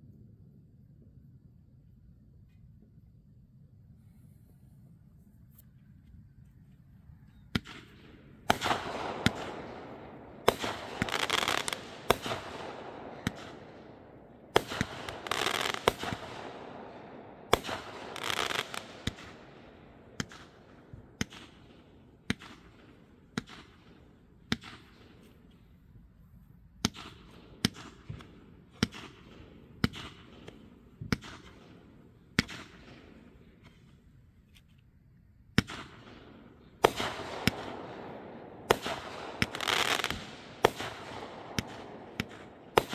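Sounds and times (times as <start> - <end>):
fireworks bangs: 7.5 - 25.4, 35.6 - 42.9
fireworks crackling hiss: 10.4 - 13.7, 14.5 - 16.6, 17.5 - 19.6, 38.7 - 42.9.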